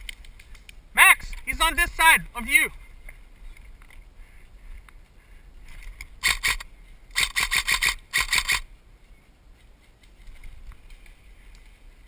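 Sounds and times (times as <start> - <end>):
airsoft rifle firing bursts: 6.2 - 8.6.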